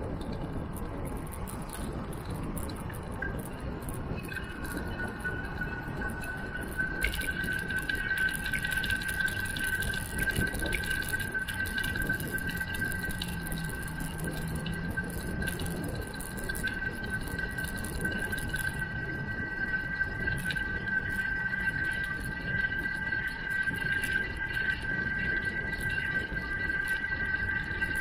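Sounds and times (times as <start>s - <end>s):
bicycle tyre noise: 0.0s - 17.2s
steady high-pitched whine: 0.0s - 28.0s
wind rushing on microphone: 0.0s - 28.0s.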